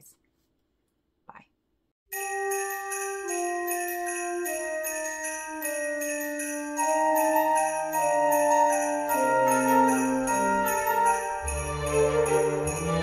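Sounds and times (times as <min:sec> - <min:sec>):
christmas background music: 0:02.1 - 0:13.0
sleigh bells shaking: 0:02.1 - 0:13.0.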